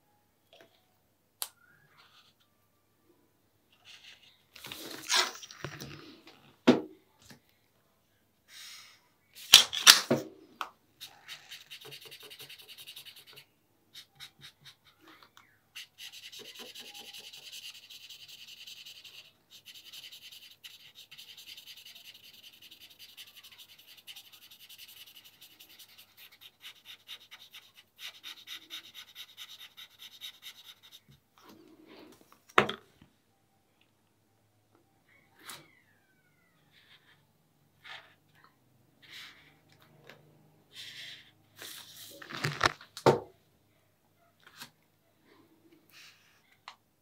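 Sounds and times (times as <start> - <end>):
marker rubbing across paper: 11.0 - 15.0, 15.8 - 31.1.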